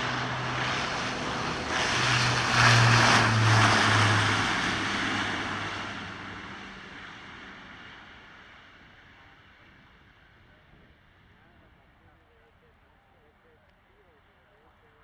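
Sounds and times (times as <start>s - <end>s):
turboprop aircraft taking off: 0.0s - 12.0s.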